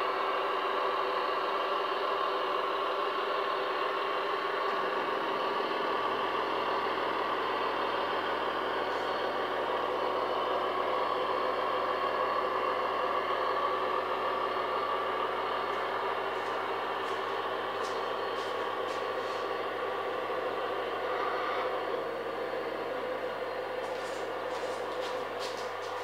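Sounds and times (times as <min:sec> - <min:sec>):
diesel locomotive hum: 0:00.0 - 0:26.0.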